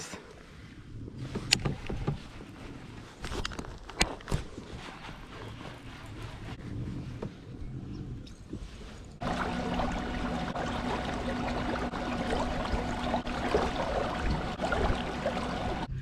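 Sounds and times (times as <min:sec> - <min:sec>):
water splashing along kayak hull: 0:00.3 - 0:07.4, 0:08.6 - 0:15.9
steady mechanical hum: 0:09.2 - 0:16.0.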